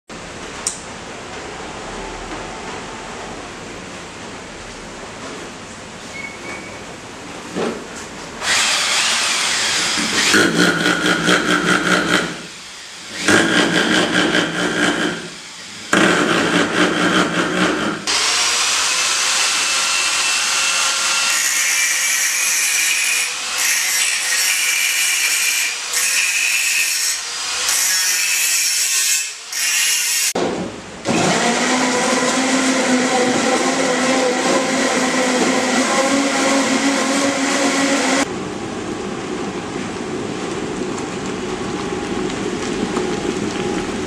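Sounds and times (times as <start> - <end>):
hammer drill boring into wood: 8.4 - 12.5, 13.1 - 26.9
countertop blender running: 8.4 - 20.7, 31.0 - 38.3
angle grinder cutting metal: 8.4 - 30.4, 31.1 - 38.3.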